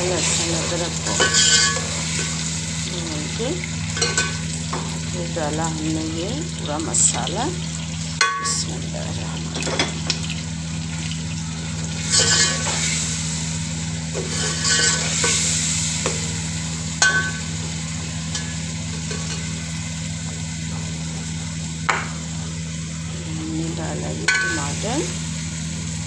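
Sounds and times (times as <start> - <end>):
onions sizzling in hot oil: 0.0 - 26.0
steady low hum: 0.0 - 26.0
ladle scraping and clinking pot: 1.0 - 2.3, 12.1 - 12.8, 14.2 - 15.4.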